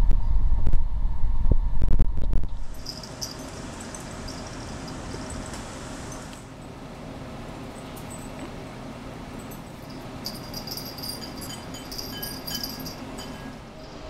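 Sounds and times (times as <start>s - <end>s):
low rumbling noise: 0.0s - 4.7s.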